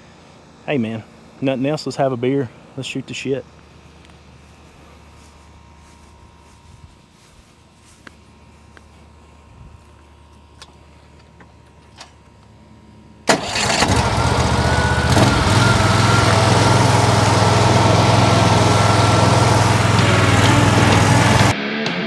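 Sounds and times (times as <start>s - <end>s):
thin steady whine: 0.0s - 13.3s
gas engine starting and running: 13.2s - 21.6s.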